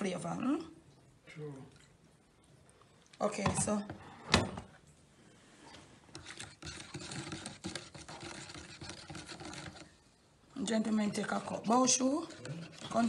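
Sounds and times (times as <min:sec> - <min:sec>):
stirrer scraping inside paper cup: 0:06.0 - 0:13.0.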